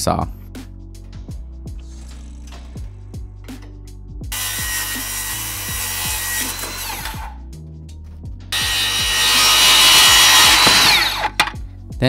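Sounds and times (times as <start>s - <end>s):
background music with bass: 0.0s - 12.0s
circular saw cutting wood: 1.8s - 3.0s, 4.3s - 7.4s, 8.6s - 11.6s.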